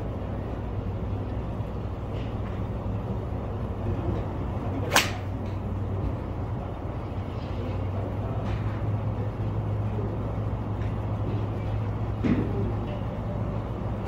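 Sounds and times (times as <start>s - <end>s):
golf club striking ball: 4.8s - 5.6s.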